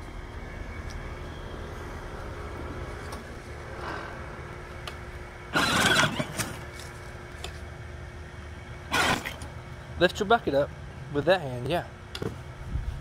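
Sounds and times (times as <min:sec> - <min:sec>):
toy tractor electric motor humming: 0:05.5 - 0:06.9, 0:08.9 - 0:09.5.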